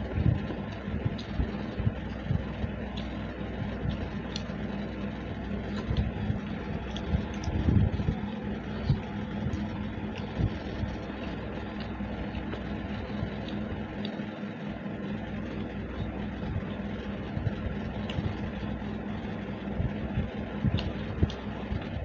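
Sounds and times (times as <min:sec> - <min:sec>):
low mechanical hum: 0:00.0 - 0:22.0
people eating by hand: 0:00.0 - 0:22.0.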